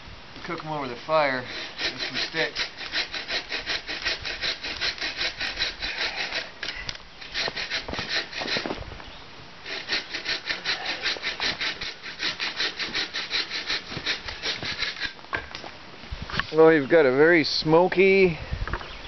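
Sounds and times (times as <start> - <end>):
blade scraping wooden stick: 0.4 - 8.8, 9.7 - 15.2.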